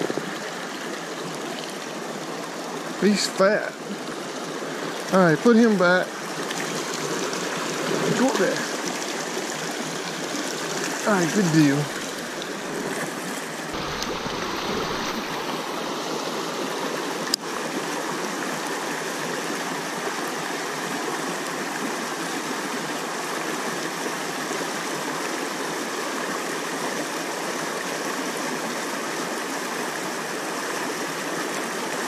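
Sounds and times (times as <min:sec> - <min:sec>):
river rapids rushing over rocks: 0:06.1 - 0:28.0.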